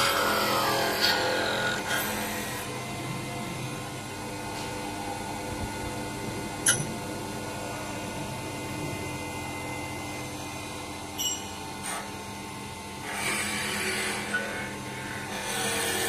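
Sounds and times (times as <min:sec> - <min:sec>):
tool cutting wood: 0:00.0 - 0:02.8, 0:13.0 - 0:16.0
lathe motor whine: 0:00.0 - 0:16.0.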